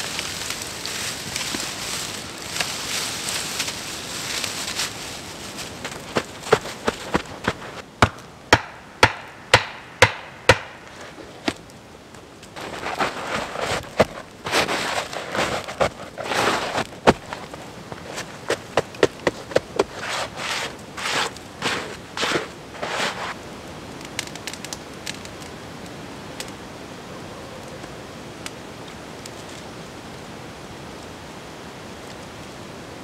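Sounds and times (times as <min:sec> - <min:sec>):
hands crunching packed snow: 0:00.0 - 0:08.2, 0:12.5 - 0:23.4
campfire crackling: 0:00.0 - 0:32.6
steady hiss: 0:00.0 - 0:33.0.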